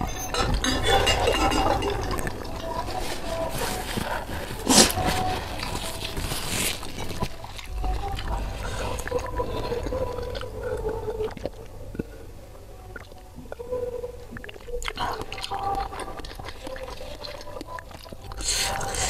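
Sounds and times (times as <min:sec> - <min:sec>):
wet mouth clicks and lip sounds: 0:14.3 - 0:19.0.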